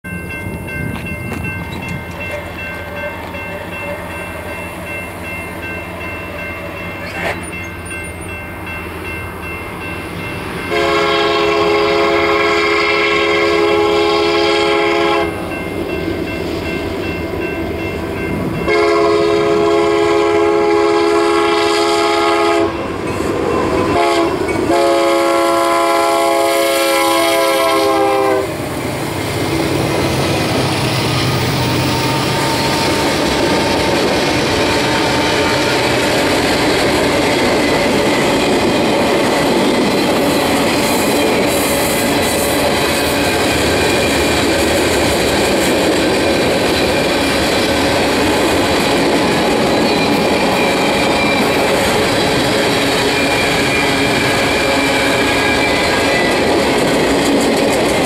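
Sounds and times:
train air horn blasts: 10.7 - 15.5, 18.7 - 22.9, 23.8 - 28.6, 31.8 - 36.3.

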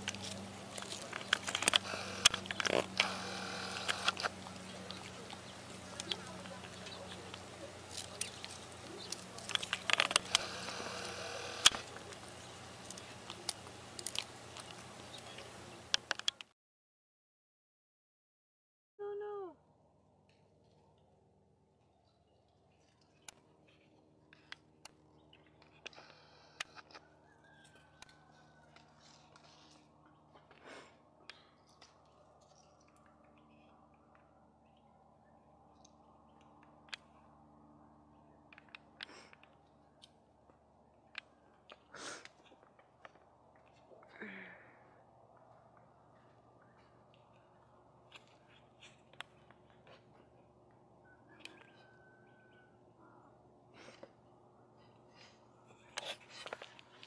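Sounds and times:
cat chewing plant stems: 0.0 - 16.3
dry twigs crackling: 0.0 - 16.4
faint steady hum: 0.0 - 16.5.

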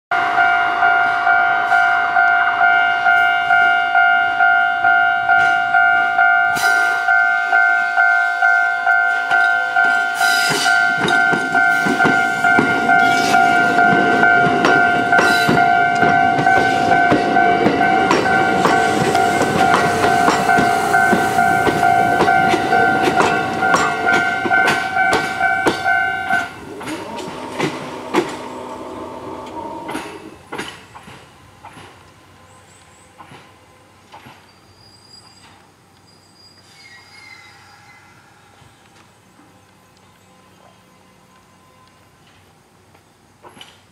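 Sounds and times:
level crossing bell ringing: 0.3 - 26.6
train wheels clacking over rail joints: 9.3 - 32.2.

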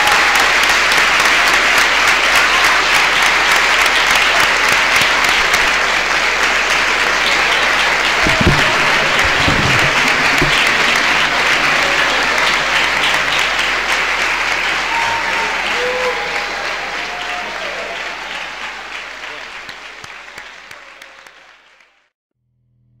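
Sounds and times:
audience applauding: 0.0 - 22.1
low bumps: 8.2 - 13.4.

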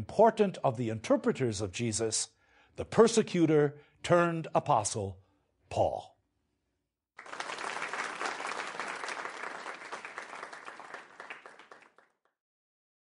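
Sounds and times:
audience applauding: 7.2 - 12.3.

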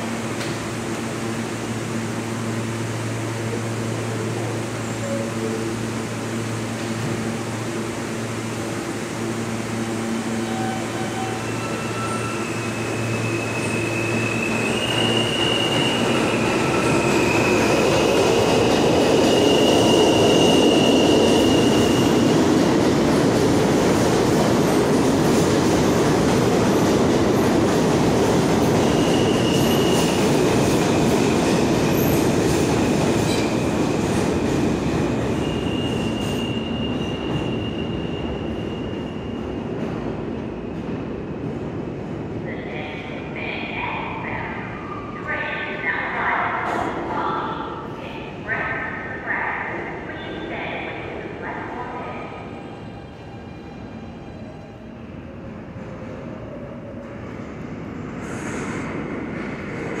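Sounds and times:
train wheels rumbling on rail: 0.0 - 43.3
subway train hum: 0.0 - 60.0
high wheel squeals: 10.4 - 17.6.

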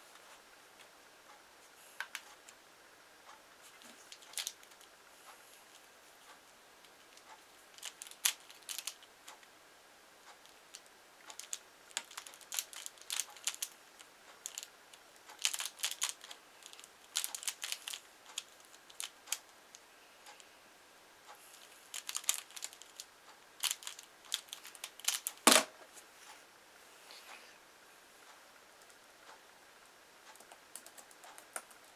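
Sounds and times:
plastic puzzle clicking: 7.2 - 9.0, 10.7 - 13.7, 15.3 - 19.4, 21.9 - 23.0, 23.6 - 25.6.

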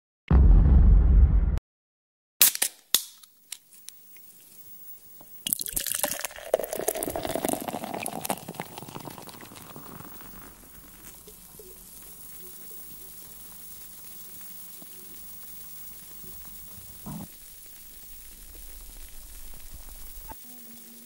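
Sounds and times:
beer pouring and bubbling: 4.1 - 20.4.

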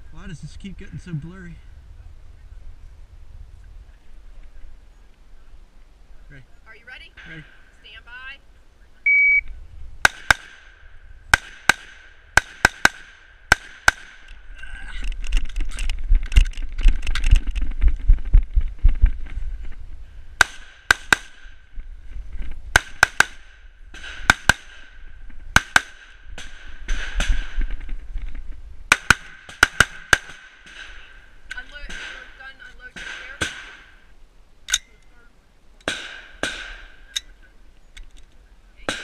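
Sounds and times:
loud rumbling rustling noise: 14.2 - 20.4, 21.4 - 22.8, 26.5 - 28.9.

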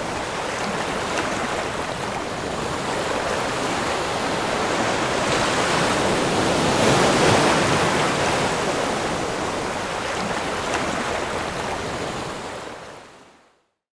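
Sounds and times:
ocean waves rushing: 0.0 - 12.8.

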